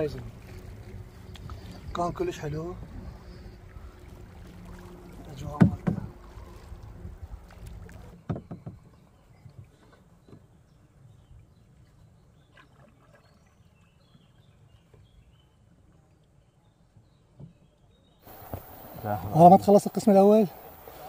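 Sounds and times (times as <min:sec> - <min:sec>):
quiet water noise: 0:00.0 - 0:21.0
low rushing noise: 0:18.3 - 0:21.0.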